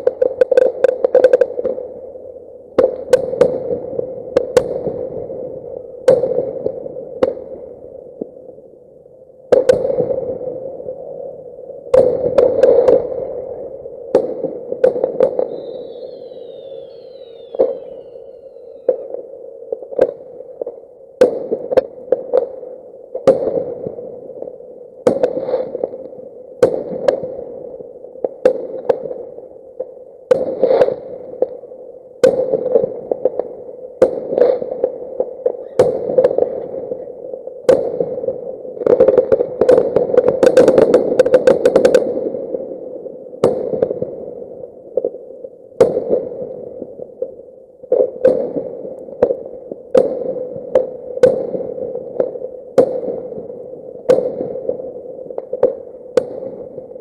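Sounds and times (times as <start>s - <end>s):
fireworks exploding: 0.0s - 1.8s, 2.8s - 5.4s, 6.0s - 7.5s, 11.9s - 19.2s, 25.0s - 27.5s, 30.3s - 31.5s, 32.2s - 42.4s, 47.9s - 57.0s
crackling volley of pops: 0.0s - 8.4s, 9.4s - 57.0s.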